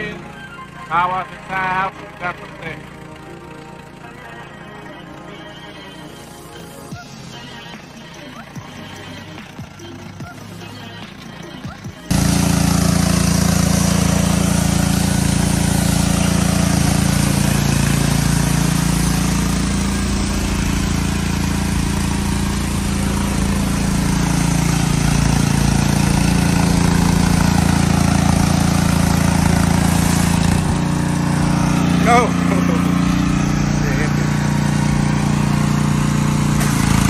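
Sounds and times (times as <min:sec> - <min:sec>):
pressure washer engine droning: 0:00.0 - 0:37.0
high-pressure water jet hissing: 0:12.1 - 0:37.0.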